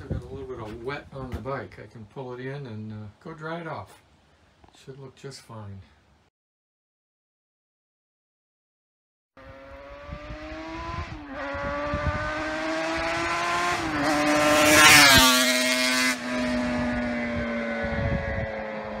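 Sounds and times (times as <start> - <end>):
passing traffic rush: 9.4 - 19.0
vehicle engine shifting gears: 9.4 - 19.0.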